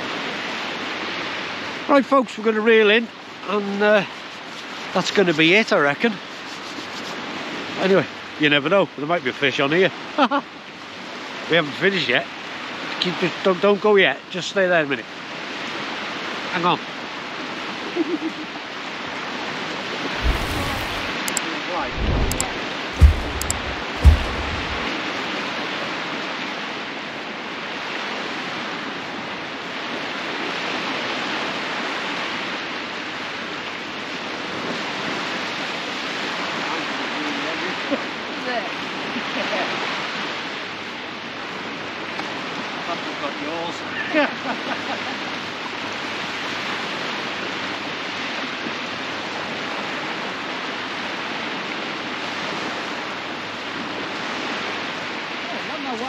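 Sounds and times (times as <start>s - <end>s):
sea surf breaking: 20.1s - 25.1s.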